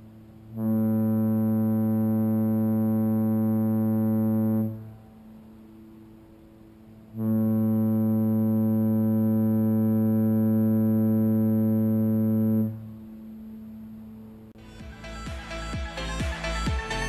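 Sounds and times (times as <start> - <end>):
faint steady tone: 0.0 - 14.6
ship horn blast: 0.4 - 5.2, 7.1 - 13.1.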